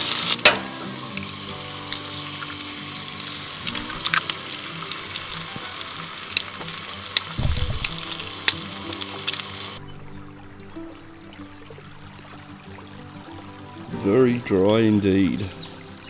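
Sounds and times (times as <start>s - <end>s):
bacon and egg sizzling: 0.0s - 10.7s.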